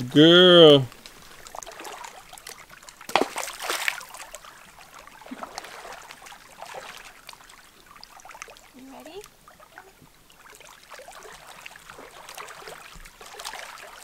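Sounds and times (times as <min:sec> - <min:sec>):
water sloshing from wading: 0:00.0 - 0:14.0
loud water splash: 0:03.0 - 0:04.3, 0:05.2 - 0:07.2.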